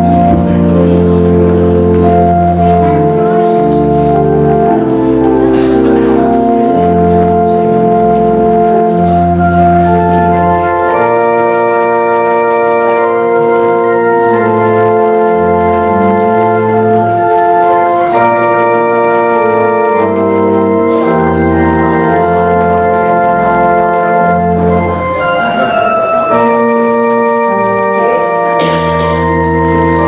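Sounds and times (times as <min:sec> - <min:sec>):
church organ playing chords: 0:00.0 - 0:30.0.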